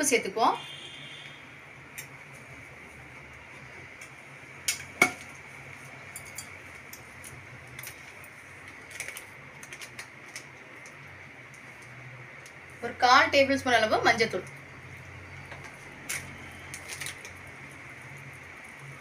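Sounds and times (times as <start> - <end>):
metal utensils clinking on pot: 6.0 - 7.0.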